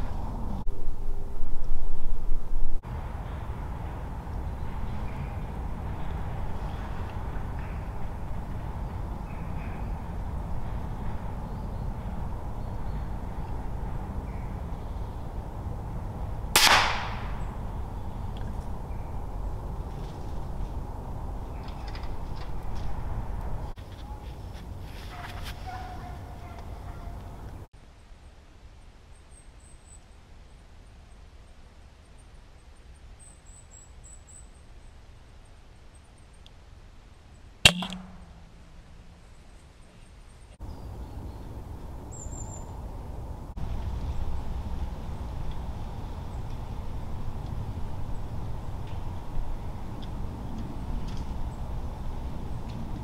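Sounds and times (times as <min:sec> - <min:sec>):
air rifle shot: 0:16.6 - 0:17.4, 0:37.7 - 0:39.1.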